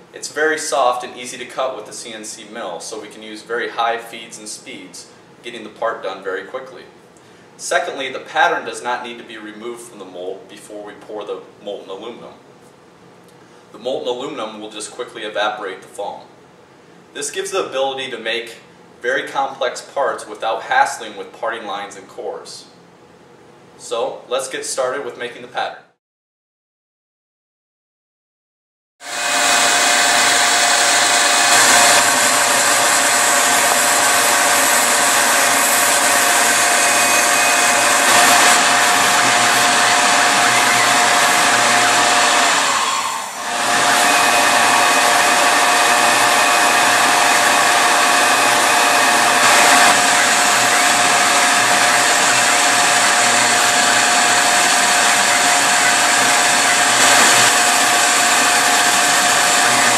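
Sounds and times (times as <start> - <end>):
end mill cutting foam: 29.0 - 59.9
mill spindle whining: 29.0 - 59.9.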